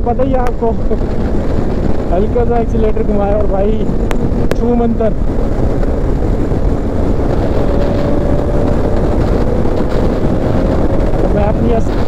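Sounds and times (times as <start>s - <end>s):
wind rushing over microphone: 0.0s - 12.0s
motorcycle engine: 0.4s - 12.0s.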